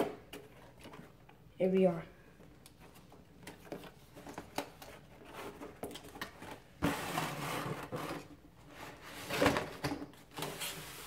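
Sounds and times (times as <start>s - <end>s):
cardboard packaging rustling: 2.6s - 11.0s.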